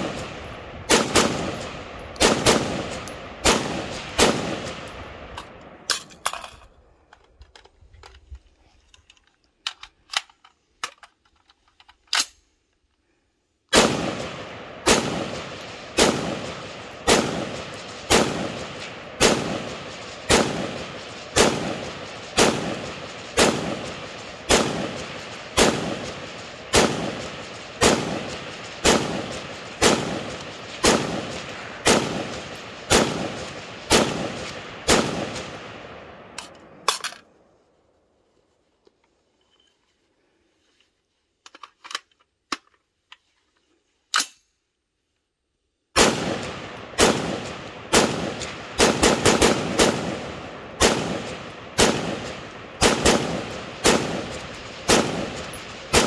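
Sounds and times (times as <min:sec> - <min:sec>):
rifle shots with echo: 0:00.0 - 0:05.9, 0:13.7 - 0:36.9, 0:46.0 - 0:56.0.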